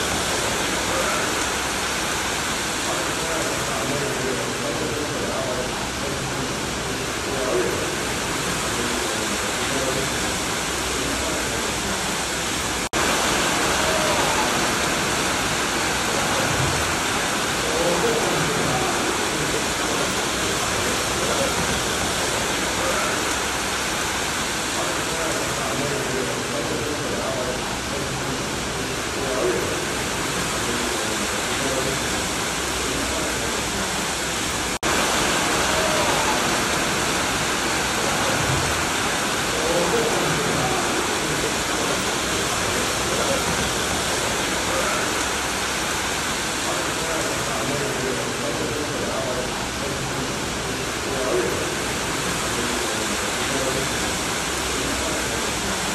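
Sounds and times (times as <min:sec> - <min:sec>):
water and hail rushing down stairs: 0:12.3 - 0:27.0, 0:28.7 - 0:55.9.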